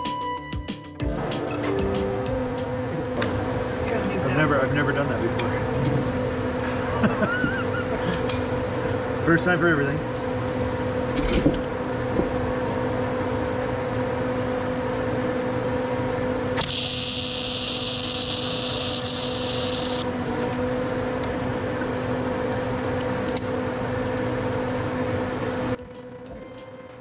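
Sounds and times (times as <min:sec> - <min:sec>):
steady electrical hum: 0:01.0 - 0:27.0
welder arc crackling and hissing: 0:16.5 - 0:20.6.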